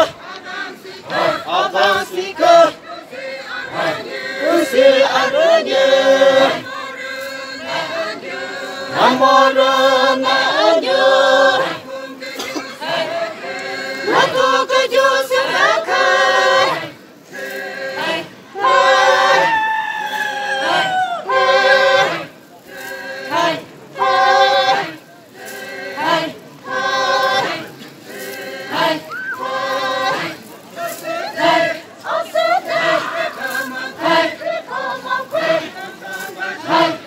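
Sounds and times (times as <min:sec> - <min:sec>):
group of voices chanting: 0:00.0 - 0:37.0.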